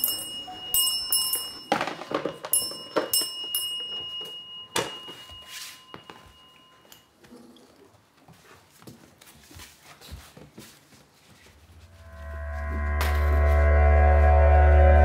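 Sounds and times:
handheld bell ringing: 0.0 - 7.1
knocks and clatters: 1.1 - 5.2.

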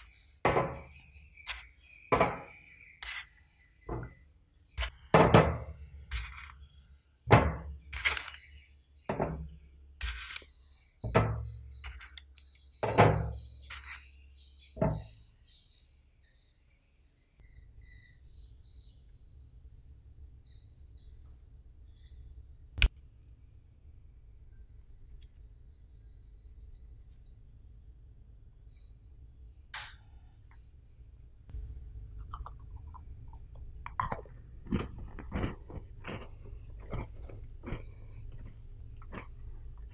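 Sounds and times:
crunchy cookies being chewed: 1.4 - 1.8, 2.9 - 3.4, 4.8 - 5.1, 6.0 - 6.8, 7.8 - 8.7, 10.0 - 10.8, 11.7 - 12.6, 13.6 - 14.1, 32.0 - 39.9
low steady hum: 17.4 - 39.9.

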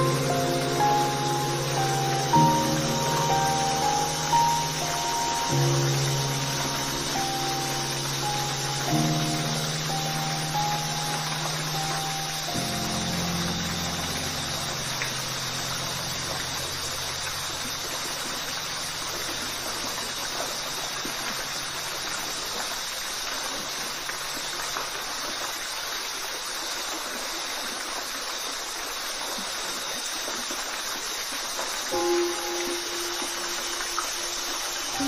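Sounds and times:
low held music chord: 0.0 - 22.3, 31.9 - 35.0
waterfall rushing: 0.0 - 35.0.

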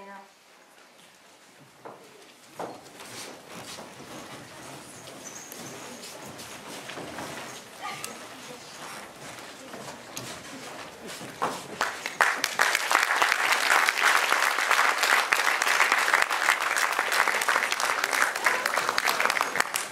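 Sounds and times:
audience applauding: 11.8 - 19.9.

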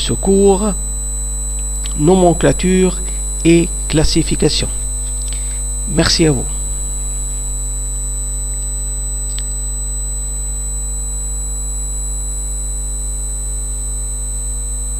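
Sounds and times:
electrical mains hum: 0.0 - 14.9
high-pitched whine: 0.0 - 14.9
faint click: 9.3 - 9.6.

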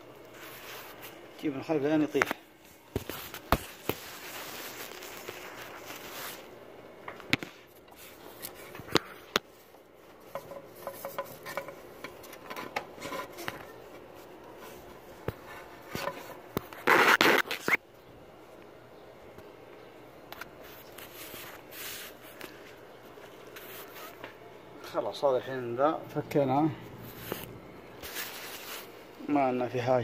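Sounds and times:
rubber belt rubbing and scraping: 3.0 - 6.5, 10.2 - 17.8, 23.5 - 24.3, 27.0 - 28.9
loud scraping rustle: 3.1 - 6.5, 27.0 - 29.0.

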